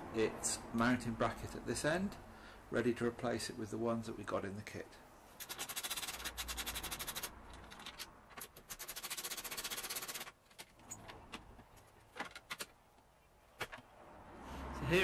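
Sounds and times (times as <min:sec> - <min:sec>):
ratchet wrench clicking: 0:05.4 - 0:08.0.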